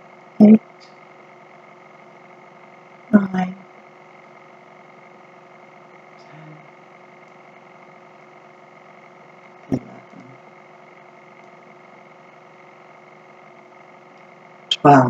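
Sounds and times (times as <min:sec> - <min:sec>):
background hum: 0:00.0 - 0:15.0
low murmur: 0:09.7 - 0:11.1.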